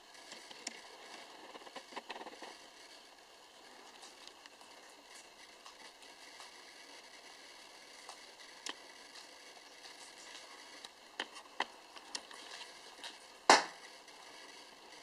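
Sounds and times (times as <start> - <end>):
sharp crack: 13.5 - 13.8.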